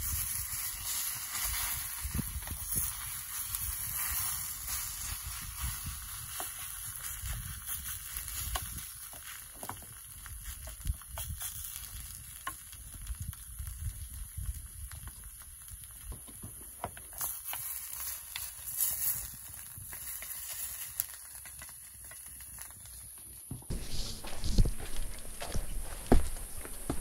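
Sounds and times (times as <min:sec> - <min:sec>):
food sizzling in a pan: 0:00.0 - 0:12.9, 0:17.1 - 0:22.6.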